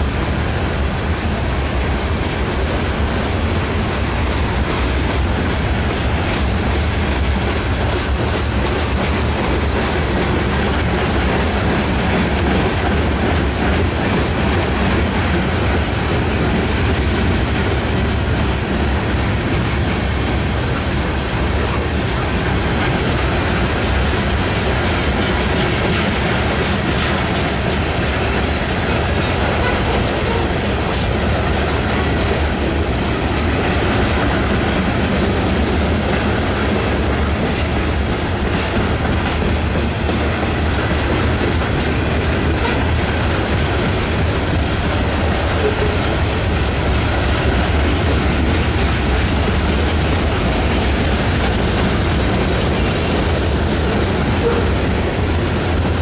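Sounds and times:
freight cars rumbling: 0.0 - 56.0
wheels clicking over rail joints: 0.1 - 56.0.

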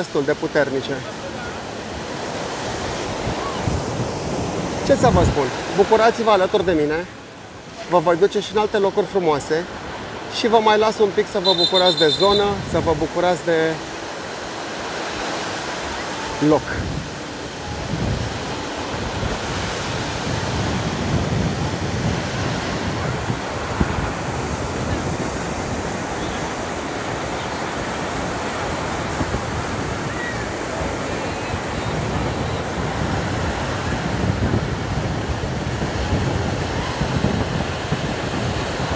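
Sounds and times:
waves breaking on beach: 0.0 - 38.9
wind buffeting microphone: 1.4 - 7.8, 14.3 - 38.9.

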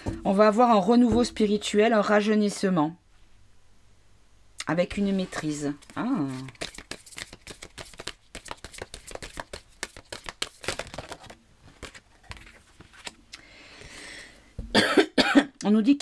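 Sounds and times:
card rustling on table: 5.2 - 13.2
cards being shuffled: 5.4 - 13.2.

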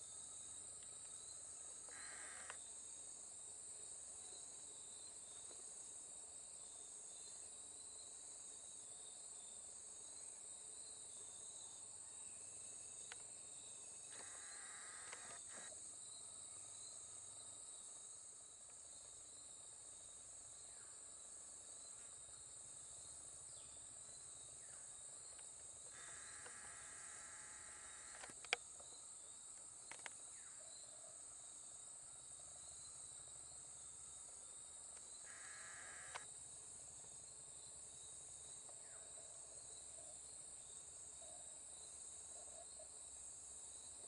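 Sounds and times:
pulsing insect chorus: 0.0 - 44.0
brief insect chirps: 1.9 - 2.6, 14.0 - 15.7, 25.3 - 28.9, 35.0 - 36.3.

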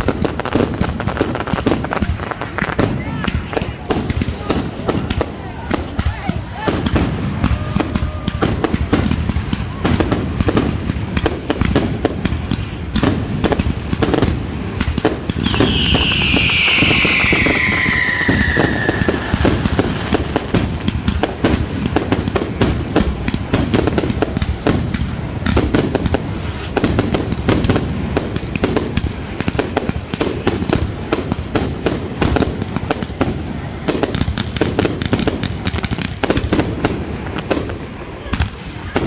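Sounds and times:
fireworks bursts and crackling: 0.0 - 39.0
firework whistle falling in pitch: 15.4 - 20.2.

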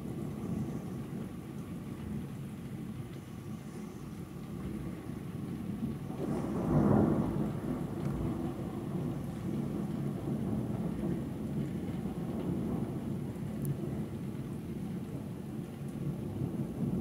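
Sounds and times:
thunder rumbling: 4.7 - 17.0.

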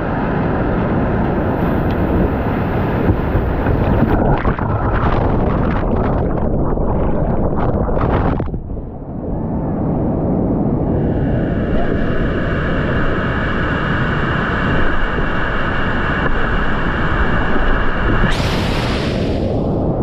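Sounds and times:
water splashing over camera: 2.0 - 8.7.

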